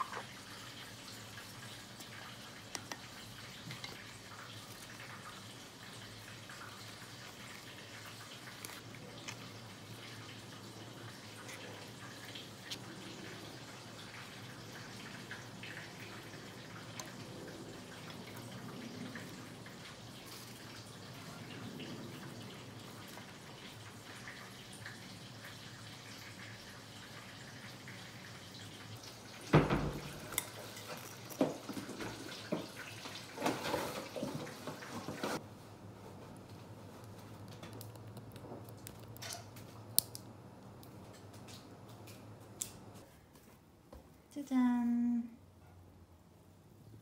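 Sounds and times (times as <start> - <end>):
kitchen knocks and clatters: 29.4 - 35.4.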